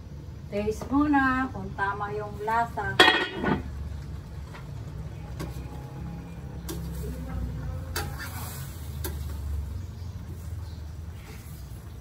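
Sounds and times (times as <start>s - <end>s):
ladle clinking against wok: 3.0s - 3.7s
pot lid clanking: 3.0s - 3.7s.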